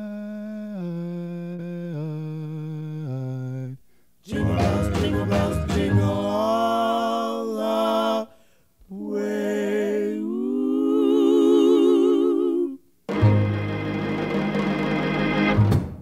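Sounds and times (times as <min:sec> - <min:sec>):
voices singing long notes: 0:00.0 - 0:08.3, 0:08.9 - 0:13.3
music: 0:04.3 - 0:06.4, 0:13.1 - 0:16.0.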